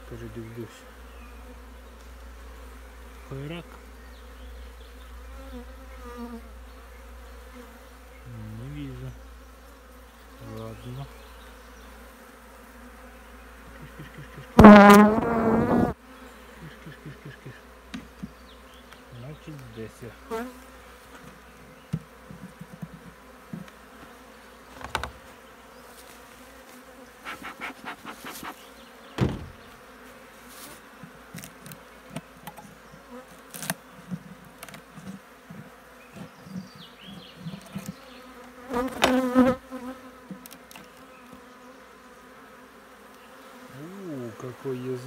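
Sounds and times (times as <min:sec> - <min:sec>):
honeybees buzzing: 0:00.0 - 0:45.0
wooden knocks and scrapes: 0:24.7 - 0:25.2, 0:29.2 - 0:29.8.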